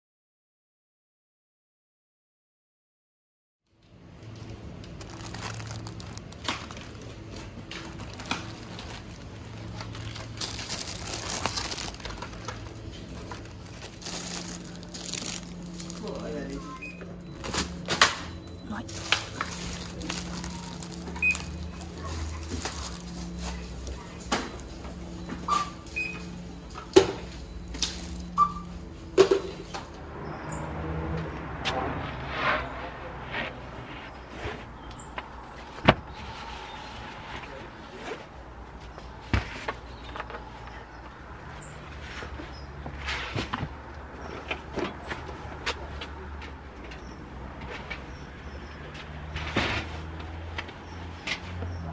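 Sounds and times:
refrigerated cabinets humming: 0:03.8 - 0:30.2
plastic packaging crinkling: 0:04.4 - 0:24.8, 0:27.3 - 0:28.4
scanner beep: 0:16.6 - 0:19.0.

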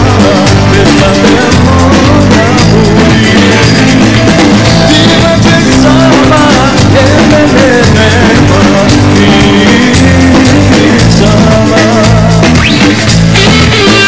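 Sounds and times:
bass guitar: 0:00.0 - 0:14.0
drum kit: 0:00.0 - 0:14.0
electric guitar: 0:00.0 - 0:14.0.

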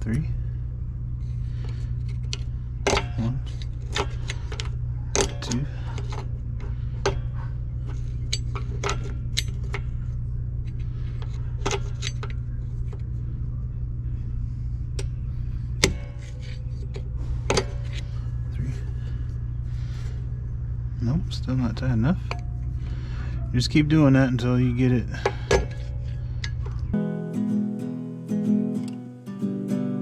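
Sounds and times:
steady low hum: 0:00.0 - 0:28.7
screwdriver clicking and scraping metal: 0:10.6 - 0:13.0.

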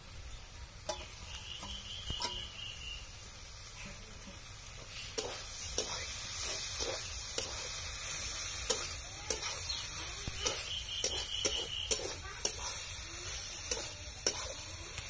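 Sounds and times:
meat sizzling in a pan: 0:00.0 - 0:15.0
metal spatula scraping pan: 0:05.1 - 0:14.7.

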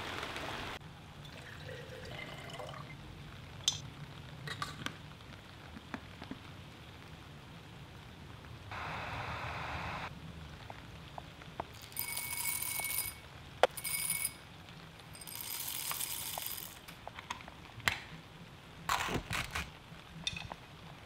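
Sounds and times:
hand coffee grinder grinding: 0:15.2 - 0:16.8.

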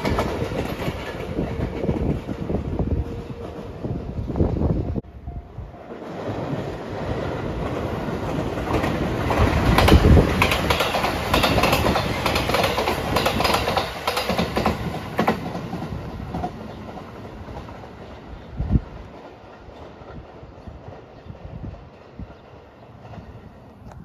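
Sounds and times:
electric train passing: 0:00.0 - 0:24.0
wheels clicking over rail joints: 0:07.0 - 0:24.0.

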